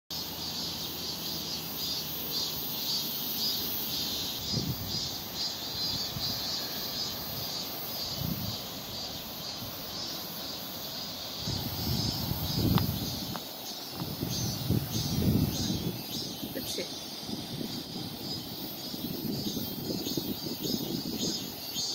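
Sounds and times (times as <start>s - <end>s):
insects chirring in trees: 0.1s - 21.9s
wind rumble on microphone: 4.4s - 10.0s, 11.3s - 21.9s.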